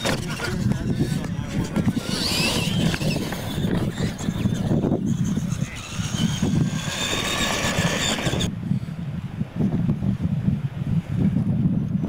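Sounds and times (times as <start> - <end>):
toy truck motor whine: 0.0 - 8.5.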